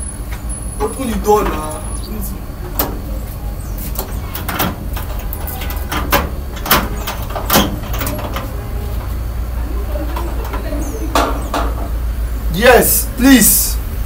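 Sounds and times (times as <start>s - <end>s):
low steady rumble: 0.0s - 14.0s
door handle rattling: 2.7s - 3.2s, 3.9s - 12.0s.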